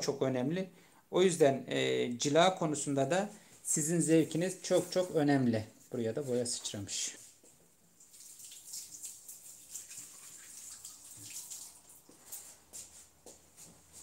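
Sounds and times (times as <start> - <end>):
water splashing and wet rubbing: 6.3 - 14.0.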